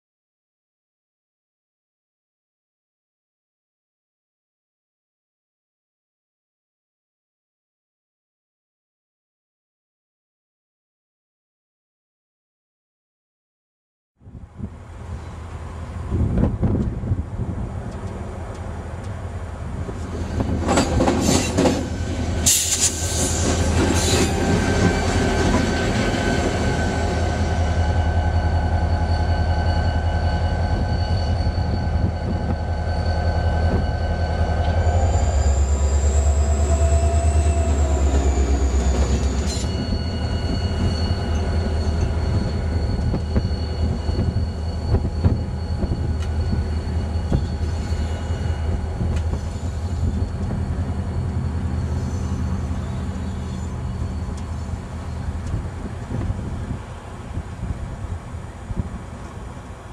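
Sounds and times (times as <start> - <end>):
diesel locomotive engine rumble: 14.2 - 59.9
wheels clanking over rail joints: 19.8 - 26.3
high-pitched wheel squeal: 20.4 - 55.4.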